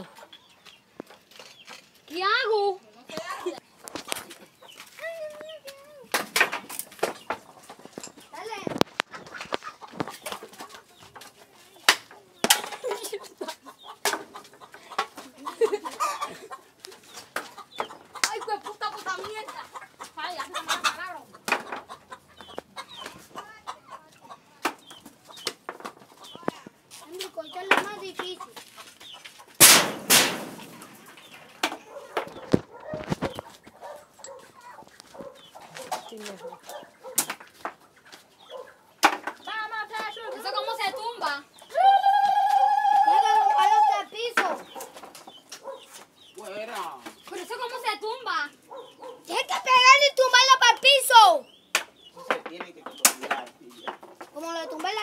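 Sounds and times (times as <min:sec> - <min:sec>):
hens clucking: 0:00.0 - 0:55.0
sharp knocks and clatter: 0:06.1 - 0:11.3, 0:29.6 - 0:33.4
loud crash: 0:29.6 - 0:30.9.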